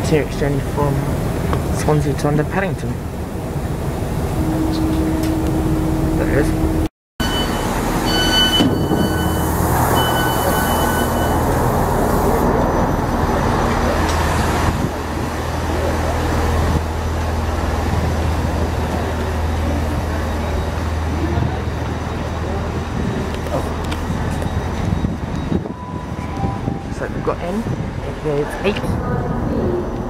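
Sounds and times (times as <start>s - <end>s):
low rumble of trains: 0.0s - 30.0s
high beeping tone: 7.2s - 12.0s.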